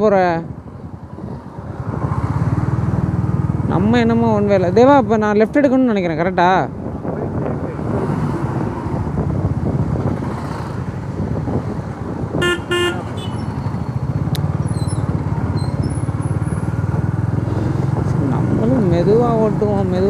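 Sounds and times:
road and traffic noise: 0.0s - 20.0s
vehicle horn toots: 12.4s - 13.5s.

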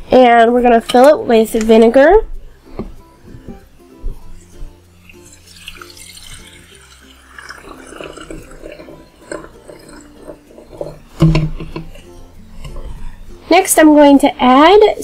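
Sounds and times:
liquid pouring into a flask: 5.0s - 12.0s
thump: 11.2s - 11.8s.

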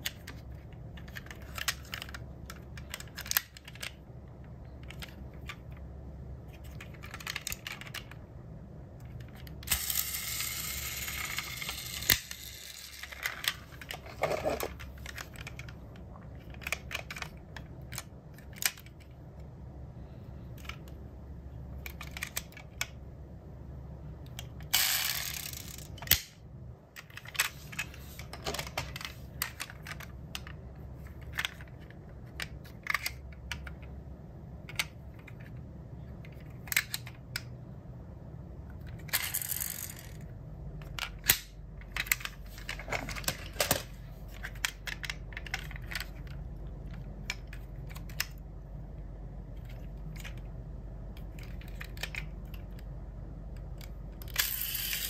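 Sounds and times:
toy cars clicking and tapping: 0.0s - 4.0s, 9.1s - 19.1s, 24.3s - 26.3s, 38.8s - 48.4s, 51.2s - 52.9s, 53.6s - 55.0s
low steady hum: 0.0s - 55.0s.

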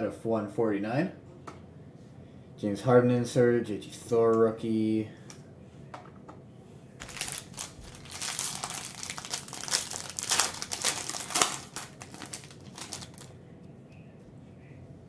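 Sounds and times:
card pack wrapper crinkling: 7.0s - 13.3s.

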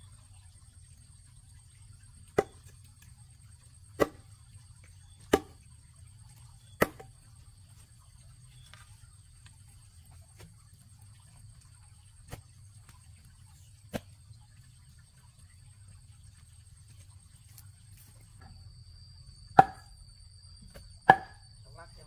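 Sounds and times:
tool striking wood: 4.0s - 4.2s, 5.3s - 5.6s, 6.8s - 7.1s, 19.6s - 19.9s, 21.1s - 21.4s.

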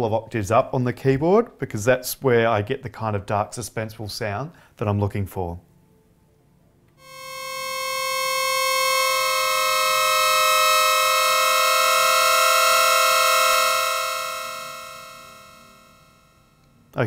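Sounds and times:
synthesizer pad chord: 7.0s - 16.6s.

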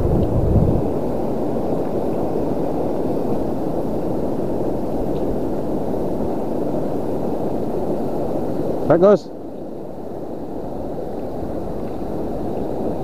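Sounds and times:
wind noise on microphone: 0.0s - 8.9s.

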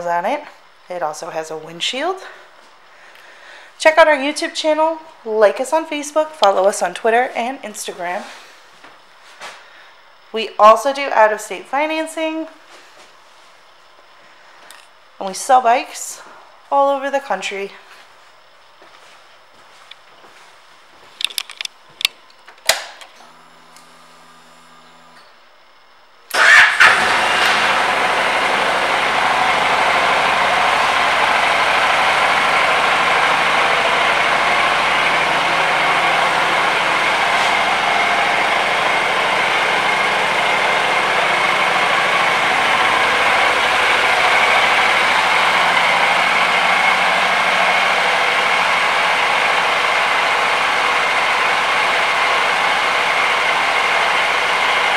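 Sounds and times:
motorcycle engine cranking: 26.3s - 28.0s
motorcycle engine idling: 26.4s - 54.9s.

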